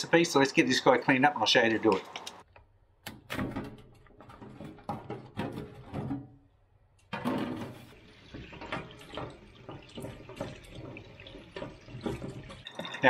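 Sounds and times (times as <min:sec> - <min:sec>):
tap water running into sink: 0:07.9 - 0:13.0.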